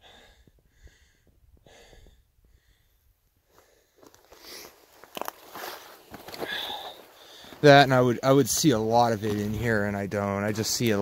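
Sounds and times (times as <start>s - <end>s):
heavy breathing: 0.0s - 4.9s, 5.7s - 7.7s
footsteps crunching on gravel: 4.0s - 10.8s.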